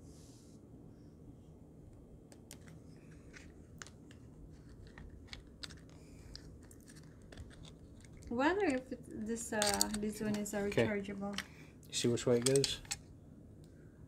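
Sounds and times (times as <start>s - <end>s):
small plastic parts clicking: 2.3s - 11.5s, 12.3s - 13.1s.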